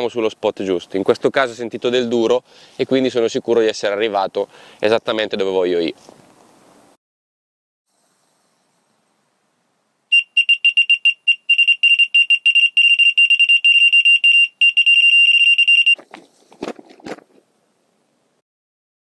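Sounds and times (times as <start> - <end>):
bite alarm rapid beeps: 10.1 - 16.0.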